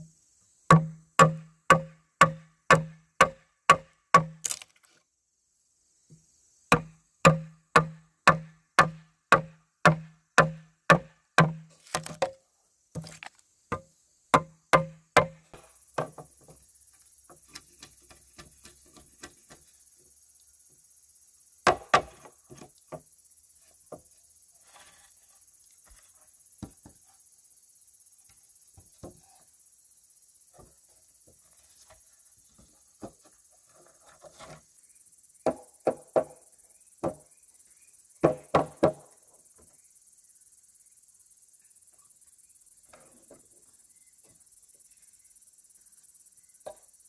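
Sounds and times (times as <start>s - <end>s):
high chirring of insects: 0.0s - 47.0s
knocks on wood: 16.0s - 16.6s, 35.4s - 36.4s, 37.0s - 37.3s, 38.2s - 39.0s.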